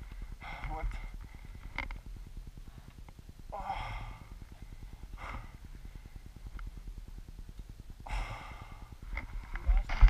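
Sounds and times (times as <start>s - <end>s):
person breathing heavily: 0.0s - 6.5s, 8.0s - 9.4s
low steady rumble: 0.0s - 10.0s.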